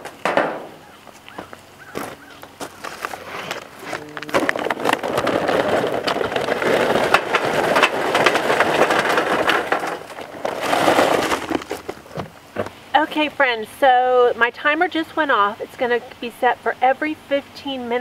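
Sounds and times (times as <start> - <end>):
charcoal pouring into metal chimney: 3.8 - 12.3.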